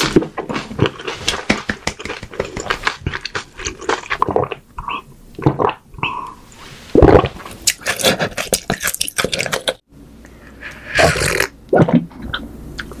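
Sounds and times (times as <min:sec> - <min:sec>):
gulping and swallowing: 0:00.1 - 0:06.4, 0:07.0 - 0:09.8.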